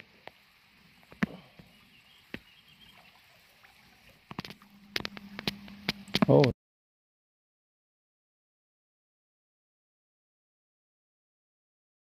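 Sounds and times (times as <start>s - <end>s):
low steady hum: 0.3s - 6.6s.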